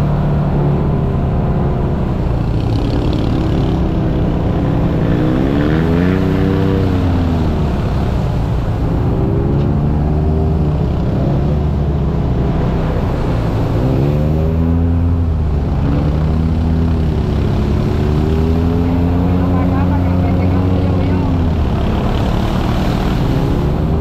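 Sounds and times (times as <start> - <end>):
utility vehicle engine revving: 0.0 - 24.0.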